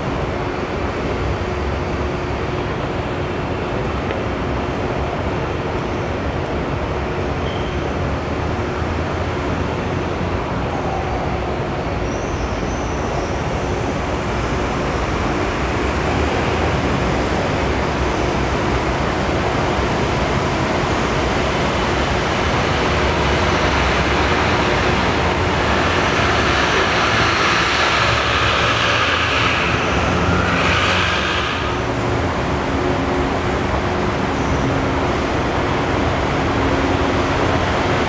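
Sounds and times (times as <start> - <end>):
roar of city traffic: 0.0 - 38.0
vehicle passing with a whine: 24.4 - 31.9.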